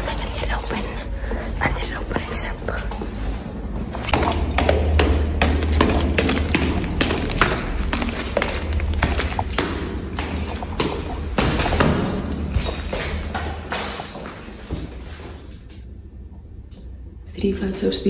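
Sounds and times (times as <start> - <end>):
low rumble: 0.0 - 18.0
footsteps running down stairs: 3.8 - 15.3.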